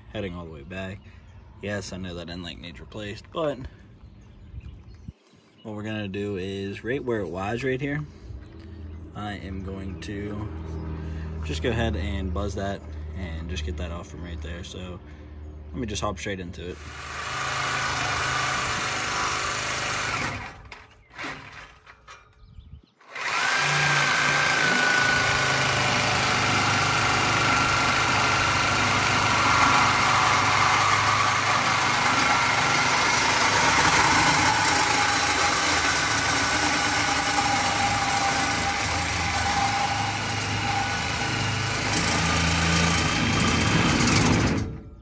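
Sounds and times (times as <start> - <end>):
reciprocating saw cutting metal pipe: 16.8 - 22.2, 23.0 - 44.8.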